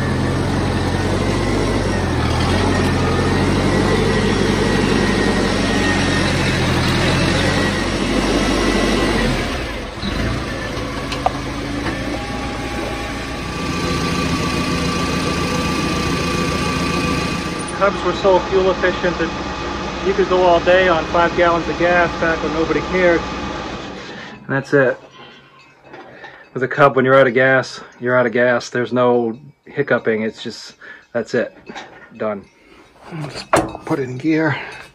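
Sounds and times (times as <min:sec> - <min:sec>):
small engine idling: 0:00.0 - 0:24.4.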